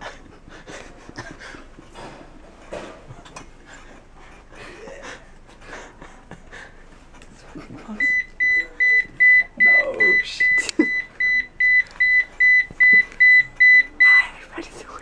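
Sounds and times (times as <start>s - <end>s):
electronic alarm beeping: 8.0s - 14.2s.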